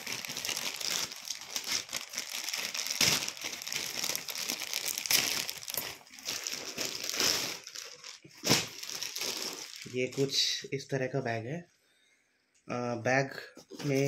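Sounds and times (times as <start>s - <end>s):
plastic bag crinkling: 0.0s - 10.5s.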